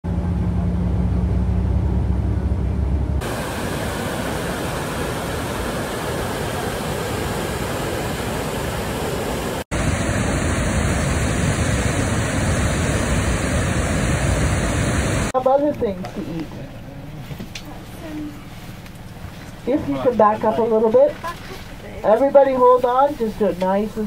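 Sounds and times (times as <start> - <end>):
moving vehicle hum: 0.0 - 15.4
rushing whitewater: 3.2 - 15.3.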